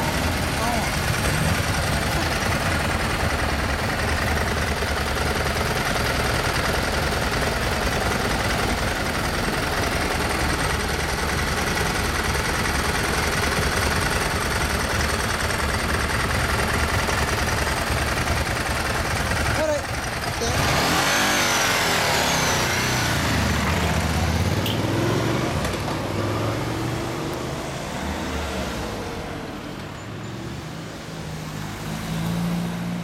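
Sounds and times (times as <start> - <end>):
motorcycle engine idling: 0.0 - 20.6.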